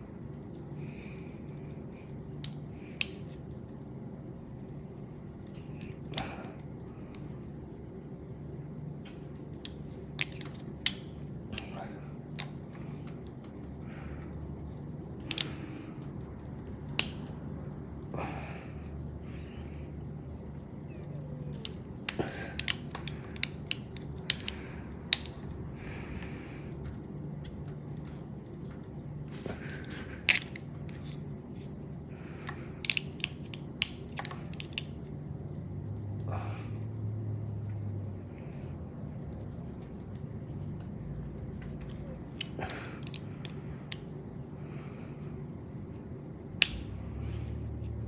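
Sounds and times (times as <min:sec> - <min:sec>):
metallic wrench clicks: 0:32.8 - 0:34.9.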